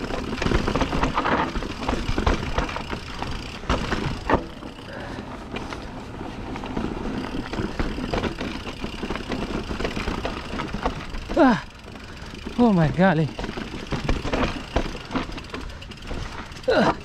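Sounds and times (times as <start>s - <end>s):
bike frame and chain clattering: 0.0s - 17.0s
tyres crunching over rock: 12.1s - 17.0s.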